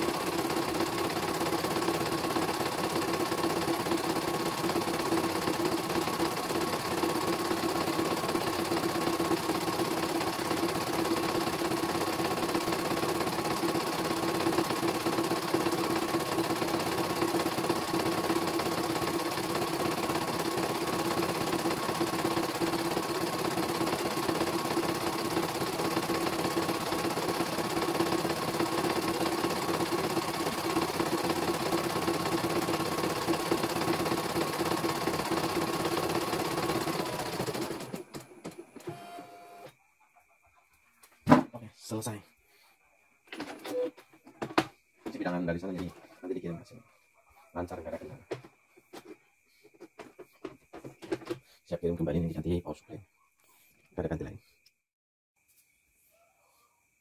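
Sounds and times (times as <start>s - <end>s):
embroidery machine needle stitching: 0.0s - 38.2s.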